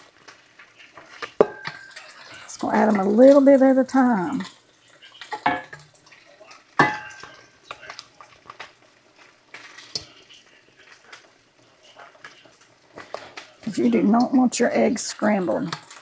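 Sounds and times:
whisk clinking in a metal bowl: 0:01.4 - 0:03.0, 0:06.8 - 0:08.3.

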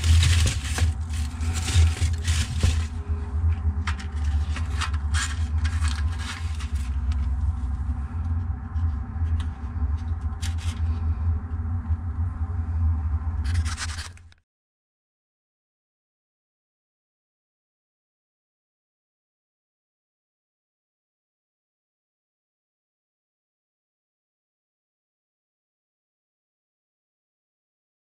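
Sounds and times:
charcoal briquettes scraping and rustling: 0:00.0 - 0:07.8, 0:09.2 - 0:11.2, 0:13.4 - 0:14.4
steady low rumble: 0:00.0 - 0:14.4.

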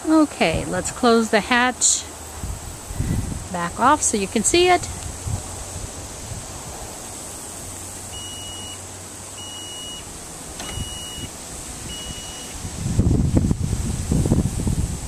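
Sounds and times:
liftgate warning beeps: 0:08.1 - 0:08.8, 0:09.4 - 0:11.3, 0:11.9 - 0:12.6.

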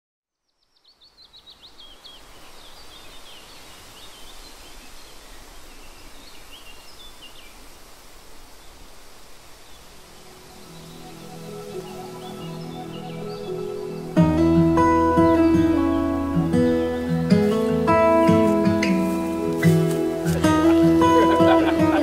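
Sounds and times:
small birds chirping: 0:00.3 - 0:22.0
steady background hiss: 0:00.6 - 0:22.0
soft music: 0:10.0 - 0:22.0.

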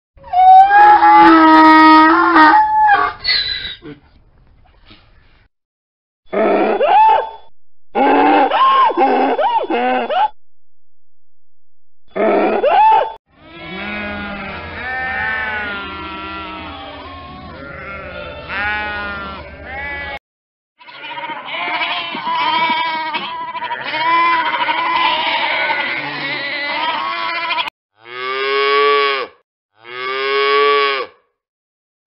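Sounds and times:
goats bleating: 0:13.4 - 0:20.2, 0:20.8 - 0:27.7
sheep bleating: 0:13.4 - 0:20.2, 0:20.8 - 0:28.2.

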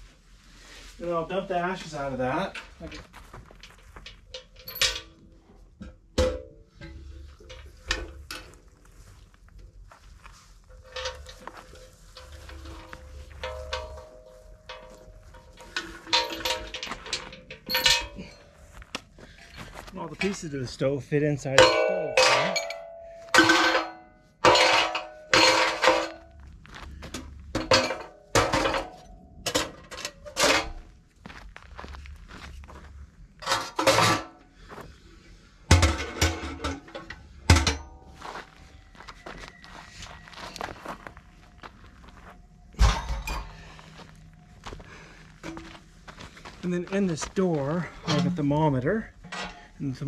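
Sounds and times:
metal pipes clanking and scraping: 0:00.5 - 0:31.0, 0:33.4 - 0:50.0
metallic bangs of a stove: 0:05.8 - 0:08.3.

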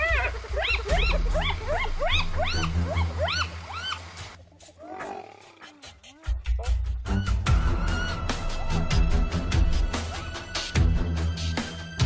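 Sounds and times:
hyenas giggling: 0:00.0 - 0:04.0, 0:04.6 - 0:07.0.

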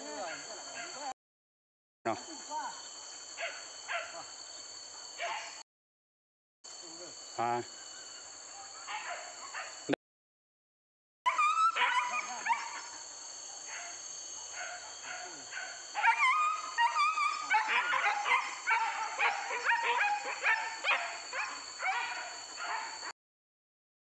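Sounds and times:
dogs yelping and baying: 0:11.3 - 0:13.0, 0:14.5 - 0:23.1.

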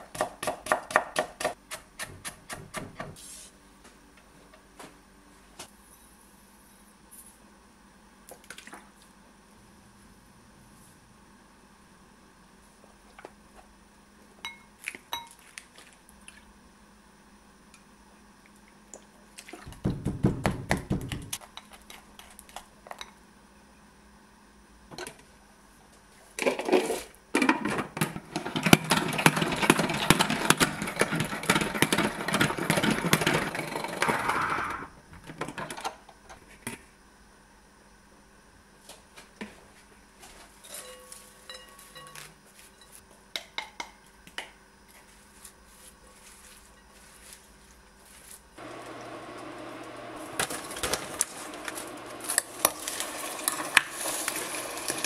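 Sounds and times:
salad spinner spinning and rattling: 0:28.3 - 0:34.5
spoon clinking against glass bowl: 0:40.7 - 0:43.0.

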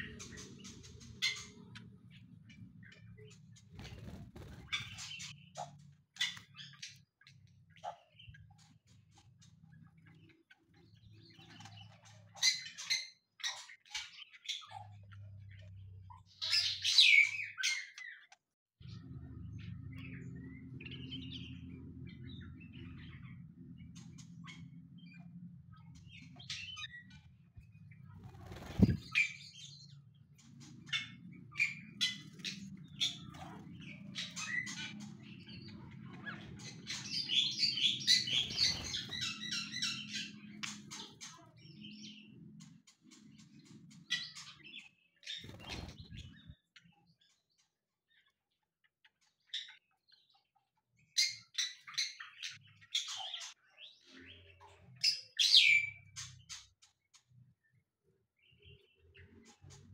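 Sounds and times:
birds chirping and calling: 0:00.0 - 0:48.4, 0:49.0 - 0:57.8, 0:58.4 - 0:59.9.

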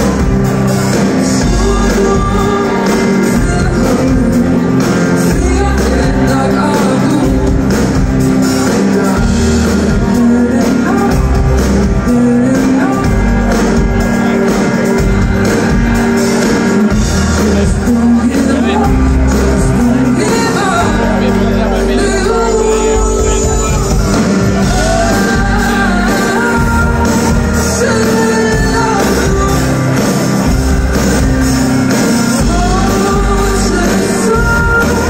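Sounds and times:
drums: 0:00.0 - 0:35.0
electric guitar: 0:00.0 - 0:35.0
woman singing: 0:01.2 - 0:07.9, 0:08.6 - 0:13.3, 0:16.9 - 0:21.3, 0:21.9 - 0:30.6, 0:32.3 - 0:35.0.

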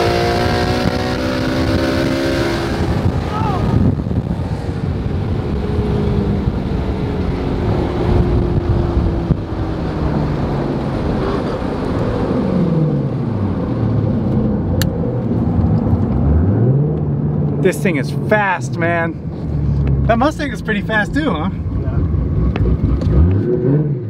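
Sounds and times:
wind noise: 0:00.0 - 0:17.6
loud car engine running: 0:00.0 - 0:23.8.

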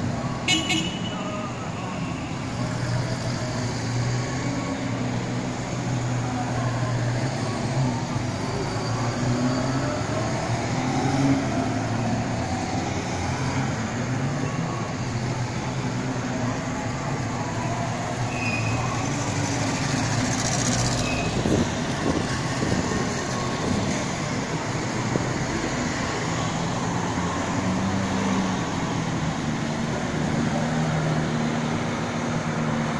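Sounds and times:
passing traffic: 0:00.0 - 0:32.9.

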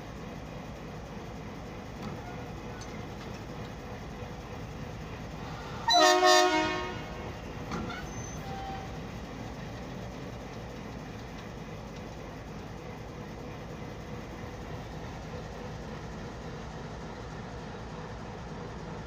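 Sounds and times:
diesel locomotive running: 0:00.0 - 0:19.0
locomotive horn blast: 0:05.8 - 0:09.0.

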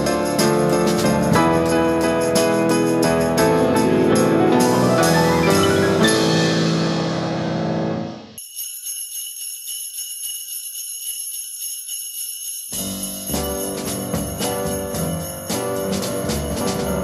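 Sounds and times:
melodic music with chiming notes: 0:01.4 - 0:06.8
high jingling shimmer: 0:08.4 - 0:17.0.

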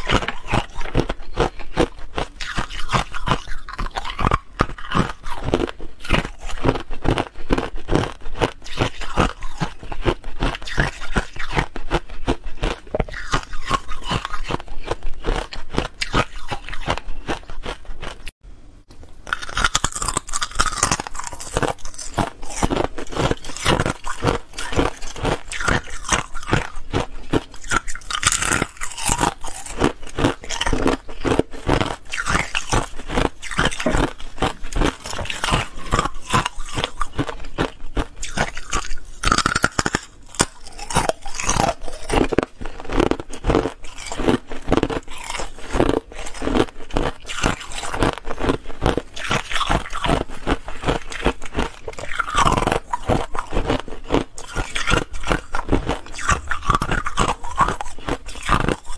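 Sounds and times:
ice crunching while chewed: 0:00.0 - 0:18.4, 0:19.2 - 0:58.9.

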